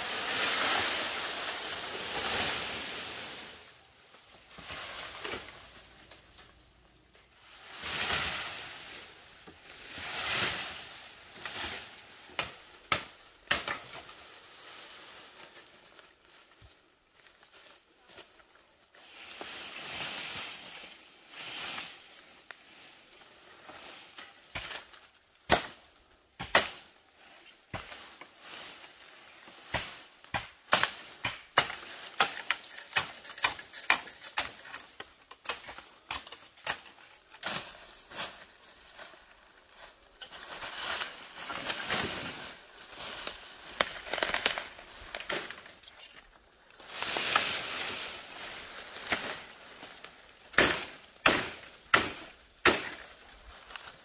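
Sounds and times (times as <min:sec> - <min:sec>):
rustling: 0:31.0 - 0:54.0.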